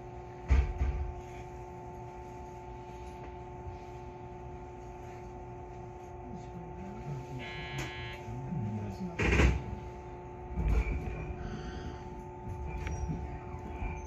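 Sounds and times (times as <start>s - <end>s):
electric train equipment hum: 0.0s - 14.0s.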